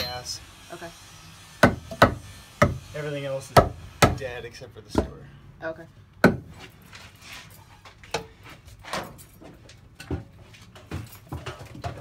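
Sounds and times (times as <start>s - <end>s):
hammer striking wooden post: 1.6s - 2.8s, 3.6s - 4.2s, 6.2s - 6.5s.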